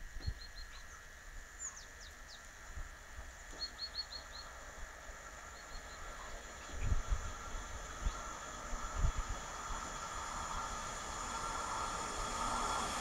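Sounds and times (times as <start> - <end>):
small bird chirping: 0.2 - 2.5, 3.5 - 4.6, 5.5 - 7.0.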